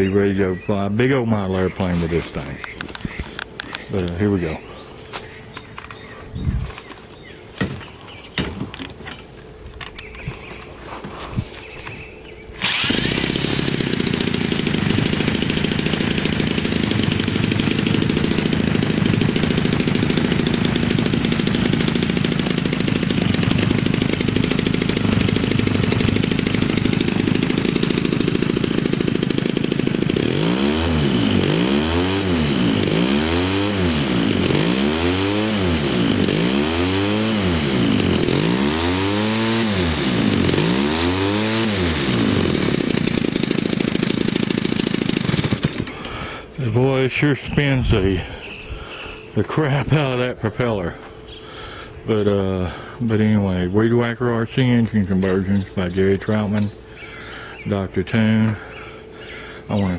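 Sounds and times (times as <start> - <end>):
two-stroke engine running: 12.6 - 46.5.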